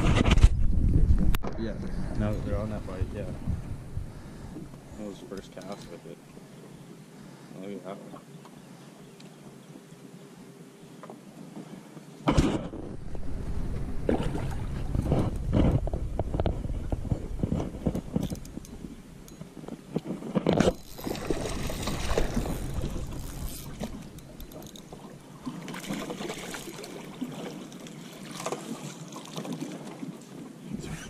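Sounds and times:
wind buffeting microphone: 0.0s - 4.9s, 12.5s - 25.2s
fish splashing in water: 20.8s - 30.0s.

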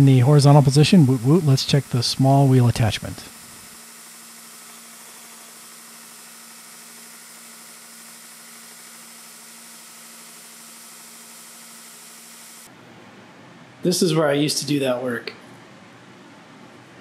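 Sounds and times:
even hiss: 0.0s - 3.8s
steady low hum: 0.0s - 17.0s.

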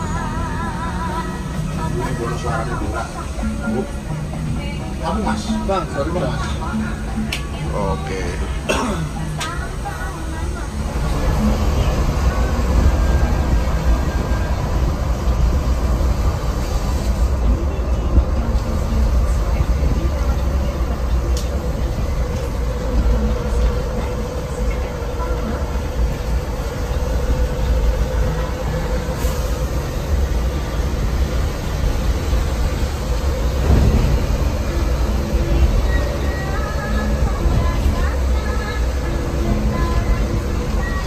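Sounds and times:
bus engine and tyre rumble: 0.0s - 41.0s.

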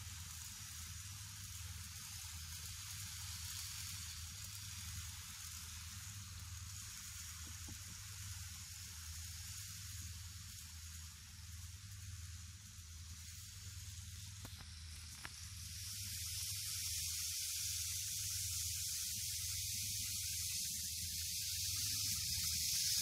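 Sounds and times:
model train running on track: 0.0s - 23.0s.

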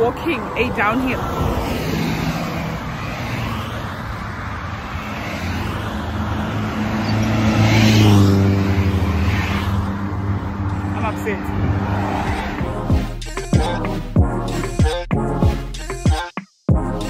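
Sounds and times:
car passing close by: 0.0s - 12.7s.

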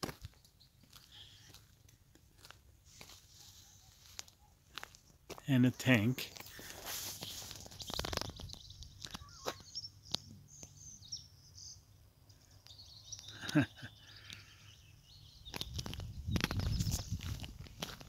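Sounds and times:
faint bird chirps: 7.1s - 17.3s
wind rumbling on microphone: 15.4s - 18.0s.

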